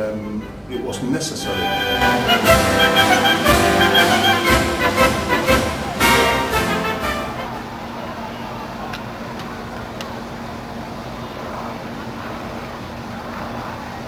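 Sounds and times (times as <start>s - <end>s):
faint clicks: 8.9s - 10.2s.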